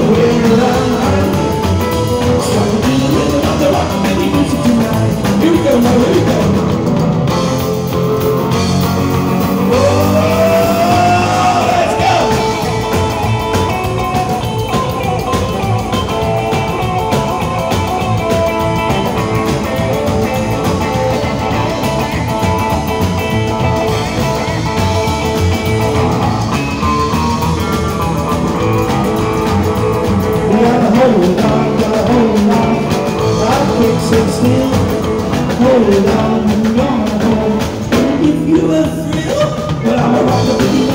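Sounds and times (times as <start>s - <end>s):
man singing into a microphone: 0.0s - 6.7s, 9.6s - 12.8s, 30.4s - 40.9s
rock and roll band playing: 0.0s - 40.9s.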